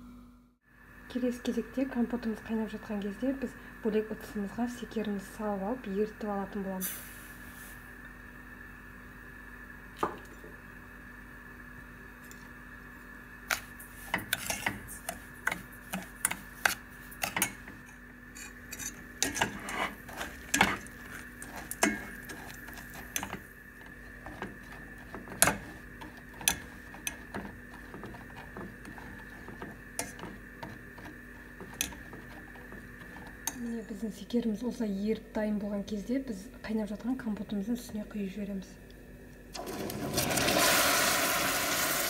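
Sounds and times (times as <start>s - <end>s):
faint steady hum: 0.0s - 42.0s
metal spoon clinking against pot: 18.4s - 22.4s.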